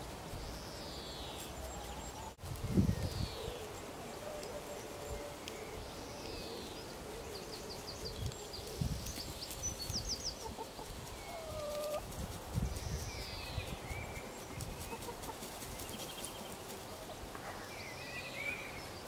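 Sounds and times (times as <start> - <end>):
small birds chirping: 0.0 - 19.0
hens clucking: 10.3 - 12.2, 14.6 - 15.8.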